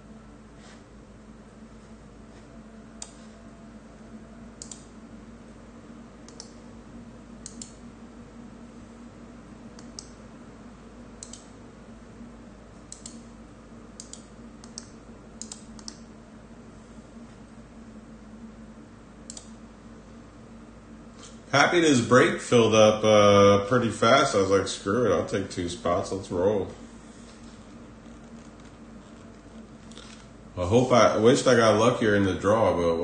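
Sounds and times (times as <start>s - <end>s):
steady low hum: 0.0s - 33.0s
computer keys clicking: 4.6s - 4.9s, 6.2s - 6.6s, 7.4s - 7.8s, 11.2s - 11.5s, 12.9s - 13.2s, 14.0s - 16.0s, 19.3s - 19.5s.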